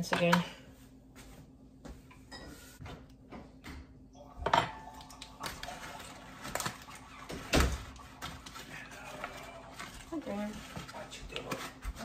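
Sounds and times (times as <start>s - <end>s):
dishes and utensils knocking: 0.0s - 0.6s, 2.2s - 5.1s.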